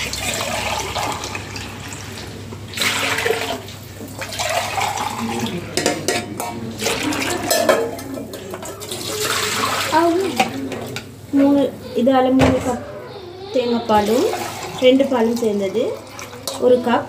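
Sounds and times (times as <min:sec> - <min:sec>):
liquid pouring and splashing: 0:00.0 - 0:06.2, 0:06.8 - 0:10.6, 0:14.0 - 0:16.8
metal vessels clinking: 0:02.8 - 0:11.1, 0:13.9 - 0:17.0.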